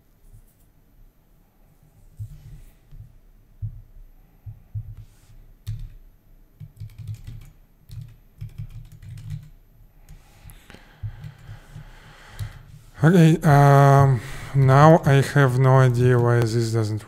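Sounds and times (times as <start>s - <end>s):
computer keyboard typing: 5.6s - 6.0s, 6.6s - 12.7s, 14.6s - 16.6s.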